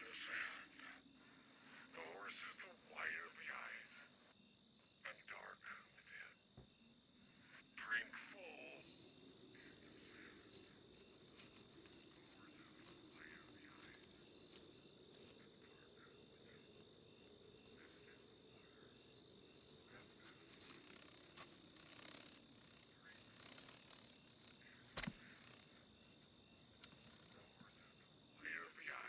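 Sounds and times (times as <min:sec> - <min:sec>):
crickets chirping: 0:00.0 - 0:29.0
soft rustles: 0:09.6 - 0:15.5, 0:20.2 - 0:24.3.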